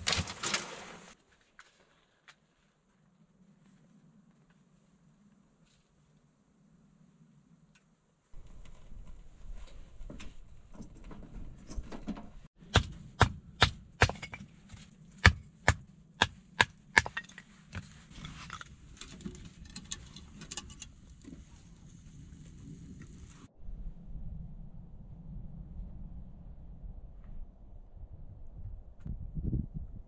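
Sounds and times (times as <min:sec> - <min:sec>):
rustling and small crackles: 0:00.0 - 0:06.4, 0:07.7 - 0:12.5, 0:17.3 - 0:23.5.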